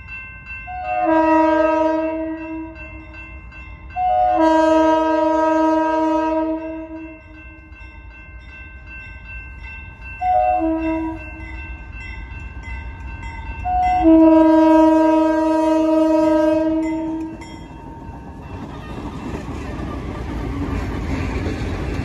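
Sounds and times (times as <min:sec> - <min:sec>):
locomotive air horn blasts: 0:00.8 - 0:02.9, 0:04.0 - 0:07.2, 0:10.2 - 0:11.4, 0:13.7 - 0:17.4
locomotive rumble: 0:10.2 - 0:22.0.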